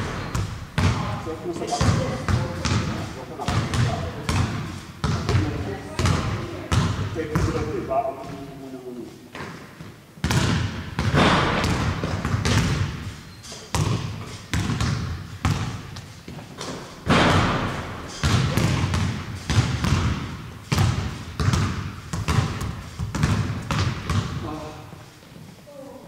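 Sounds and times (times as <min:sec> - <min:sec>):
heavy thumps: 0:10.3 - 0:13.2, 0:13.8 - 0:24.4.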